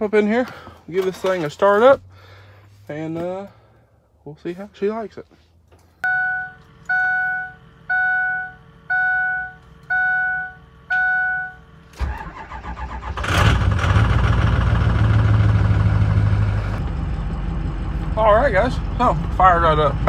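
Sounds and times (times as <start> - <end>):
diesel engine idling: 6.1 - 20.0.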